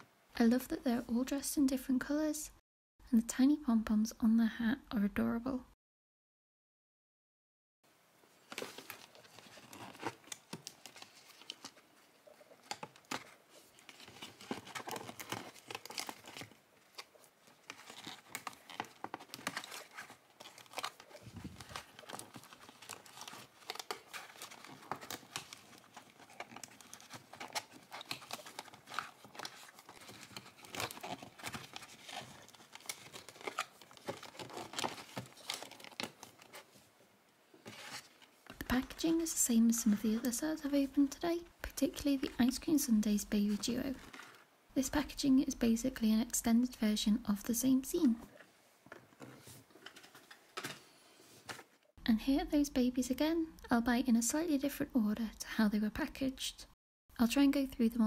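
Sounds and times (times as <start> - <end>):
packaging crinkling and rustling: 8.4 - 36.9, 43.4 - 44.5, 48.3 - 50.8.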